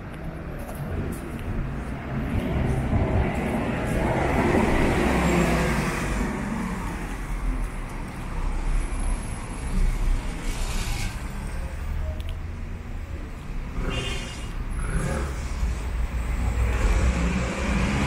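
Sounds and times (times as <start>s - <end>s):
low rumble of road traffic: 0.0s - 18.0s
vehicle passing close: 13.7s - 18.0s.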